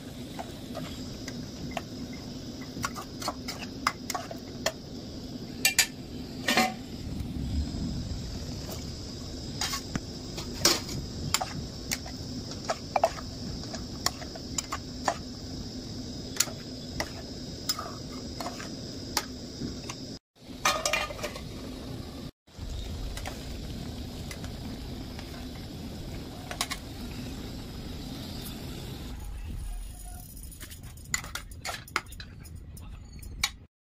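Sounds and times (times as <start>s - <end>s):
metal lid clattering: 20.6s - 21.4s.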